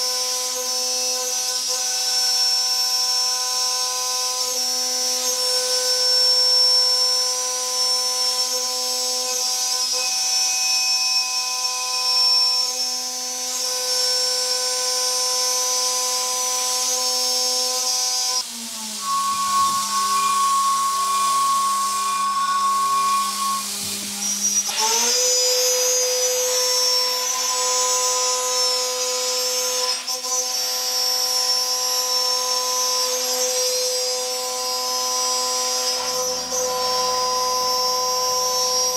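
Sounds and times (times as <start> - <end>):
milling machine high whine: 13.5 - 38.9.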